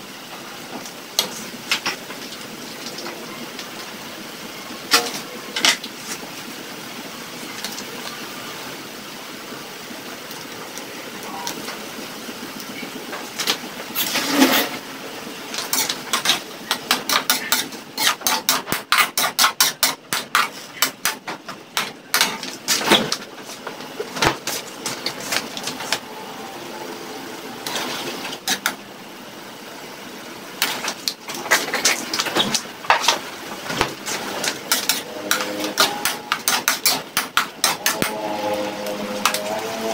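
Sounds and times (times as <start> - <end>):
meat sizzling in a wok: 0.0 - 39.9
metal spatula scraping wok: 4.9 - 5.8, 13.9 - 14.8, 15.5 - 21.2, 21.8 - 23.8, 27.6 - 28.8, 34.0 - 39.9.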